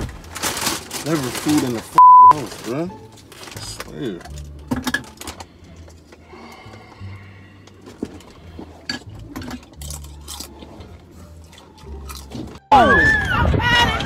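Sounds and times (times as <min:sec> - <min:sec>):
chewing tortilla chips: 0:02.9 - 0:12.6.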